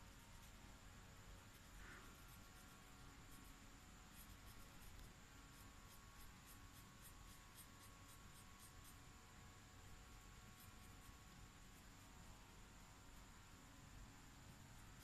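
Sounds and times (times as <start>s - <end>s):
marker scratching on paper: 1.5s - 9.0s.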